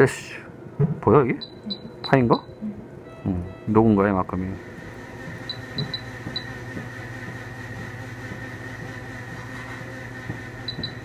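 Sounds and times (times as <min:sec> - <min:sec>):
equipment hum with high tone: 0:00.0 - 0:11.0
short high beeps: 0:01.4 - 0:03.8.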